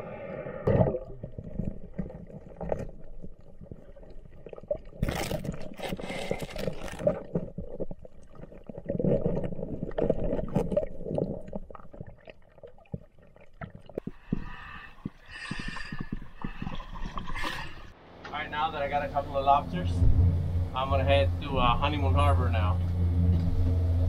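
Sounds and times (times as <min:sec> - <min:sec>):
muffled underwater rushing: 0:00.0 - 0:18.0
water splashing: 0:00.6 - 0:18.0.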